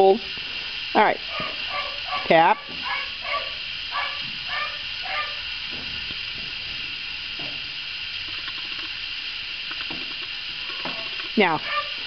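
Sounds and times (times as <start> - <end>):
steady background hiss: 0.0 - 12.0
dog barking through muzzle: 1.3 - 5.4, 11.5 - 12.0.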